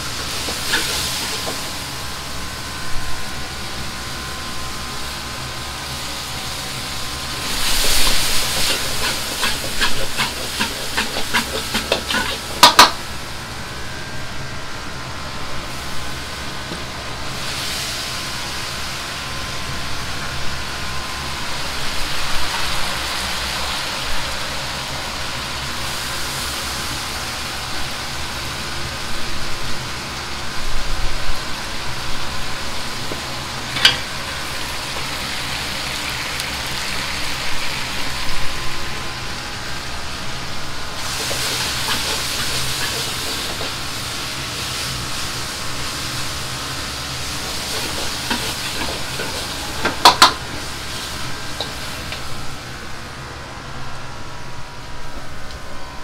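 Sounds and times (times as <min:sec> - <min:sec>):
ladle scraping and knocking wok: 0:00.0 - 0:01.8, 0:07.2 - 0:13.0, 0:33.1 - 0:35.3, 0:41.0 - 0:46.1, 0:47.2 - 0:52.5
food sizzling in a wok: 0:00.0 - 0:54.2
gas burner rushing: 0:00.0 - 0:56.0.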